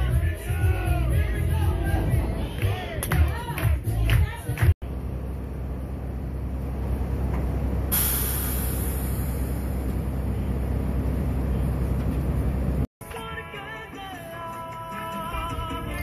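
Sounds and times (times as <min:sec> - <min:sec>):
low rumbling noise: 0:00.0 - 0:04.0.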